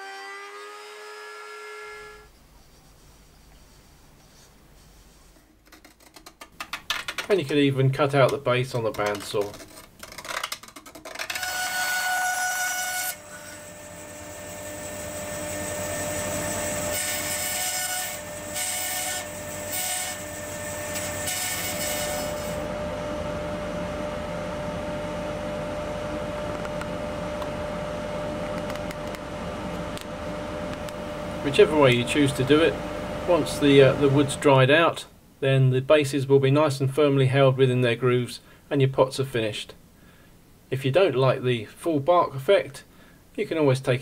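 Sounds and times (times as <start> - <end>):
bandsaw cutting wood: 0.0 - 2.3, 11.1 - 22.6
bandsaw motor hum: 0.0 - 2.3, 8.9 - 34.5.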